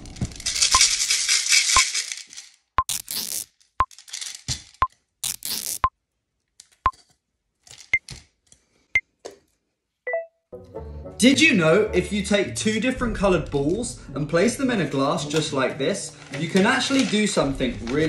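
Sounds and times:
plastic balls rattling in a cup: 0:00.0 - 0:05.8, 0:15.2 - 0:18.0.

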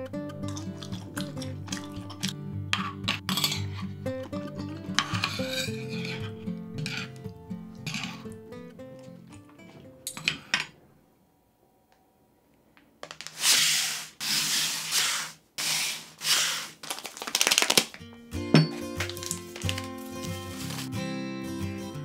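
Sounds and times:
packets rustling across a table: 0:13.0 - 0:18.0, 0:18.7 - 0:21.0.

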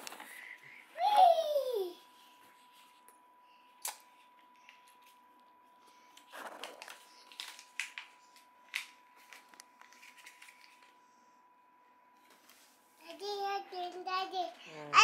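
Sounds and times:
paper crinkling and rustling: 0:05.8 - 0:11.0.

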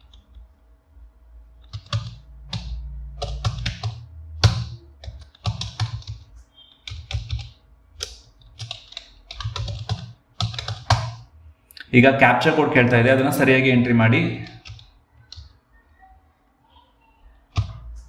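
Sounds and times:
typing on computer keyboard: 0:01.6 - 0:11.3, 0:14.4 - 0:15.6, 0:17.5 - 0:17.9.

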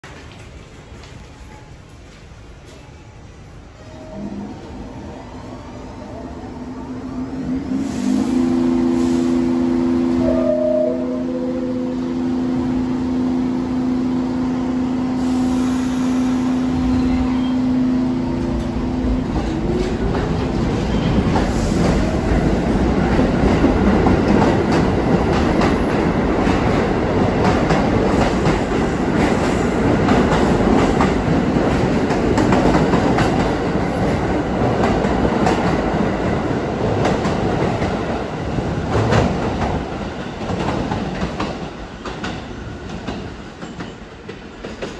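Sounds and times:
train hum: 0:00.0 - 0:44.9.

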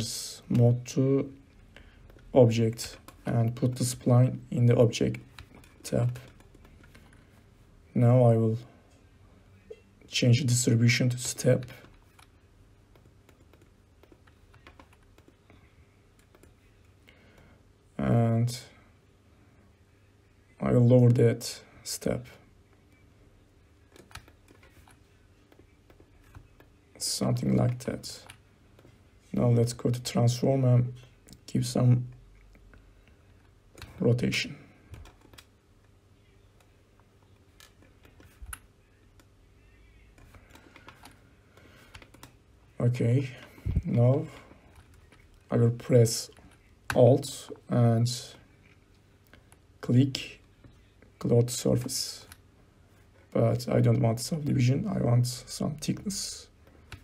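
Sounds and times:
low steady room hum: 0:00.0 - 0:57.0
computer mouse and keyboard clicks: 0:04.9 - 0:07.2, 0:11.3 - 0:16.7, 0:23.9 - 0:29.0, 0:32.1 - 0:35.6, 0:36.6 - 0:39.3, 0:40.1 - 0:42.4, 0:55.8 - 0:57.0
mouse and keyboard clicks: 0:23.9 - 0:26.7, 0:34.9 - 0:35.5.

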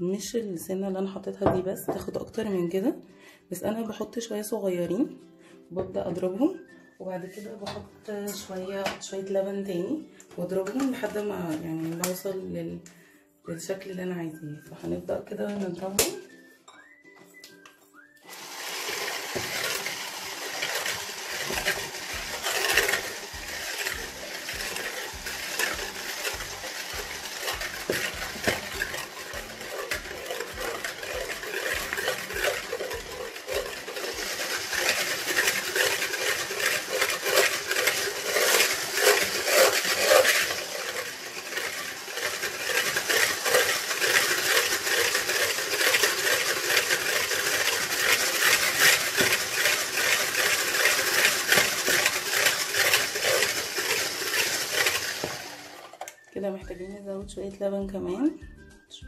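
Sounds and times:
electric hand mixer running: 0:18.2 - 0:56.2
whisk clattering against plastic bowl: 0:18.9 - 0:55.5.

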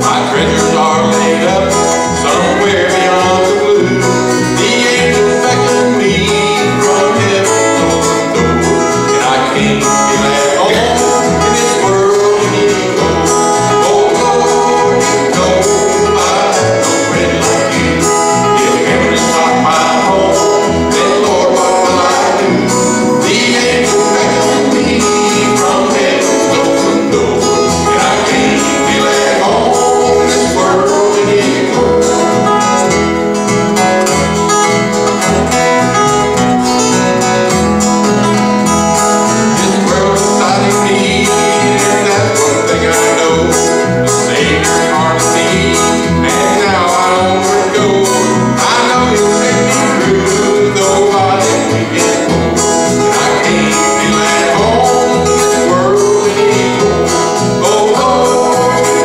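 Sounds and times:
acoustic guitar: 0:00.0 - 0:59.0
pedal steel guitar: 0:00.0 - 0:59.0
upright bass: 0:00.0 - 0:59.0.

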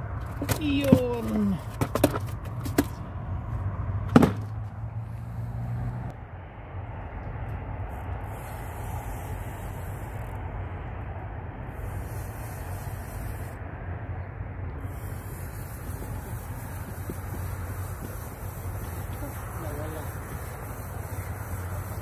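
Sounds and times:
low mechanical hum: 0:00.0 - 0:22.0
sharp knock: 0:04.1 - 0:04.5
hiss: 0:08.2 - 0:10.4, 0:11.7 - 0:13.6, 0:14.8 - 0:22.0.

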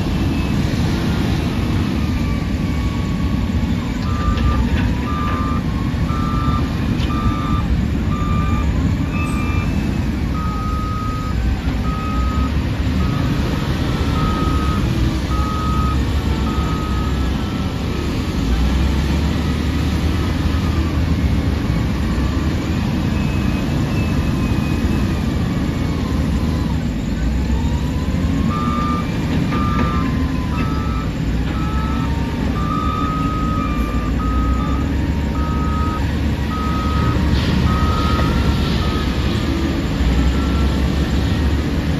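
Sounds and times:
reversing alarm beeping: 0:00.0 - 0:41.7
heavy diesel engines running: 0:00.0 - 0:41.9.

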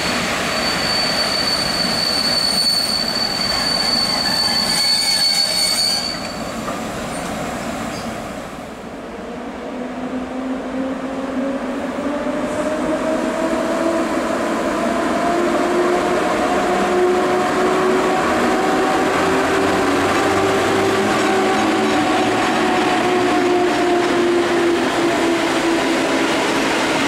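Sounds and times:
train rumble: 0:05.5 - 0:27.0.

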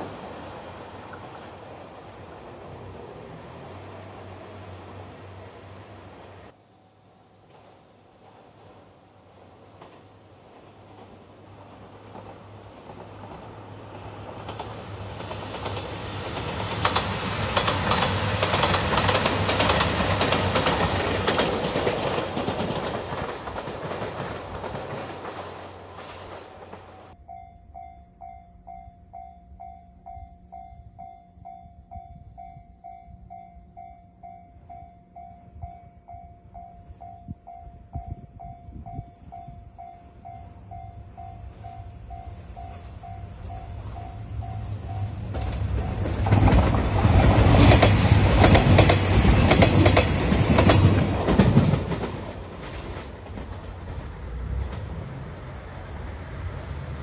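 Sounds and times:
diesel train passing: 0:00.0 - 0:57.0
level-crossing warning bell: 0:27.0 - 0:46.3.

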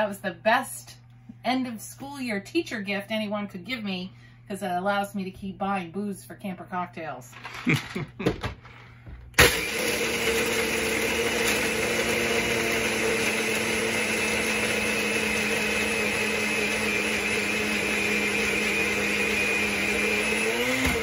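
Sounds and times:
blender motor hum and whine: 0:09.4 - 0:21.0.

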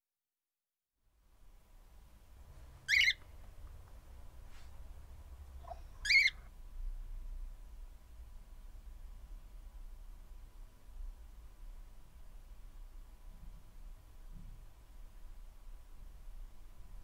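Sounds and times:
low steady hum: 0:01.1 - 0:17.0
bird calls: 0:02.9 - 0:03.3, 0:05.6 - 0:06.5.

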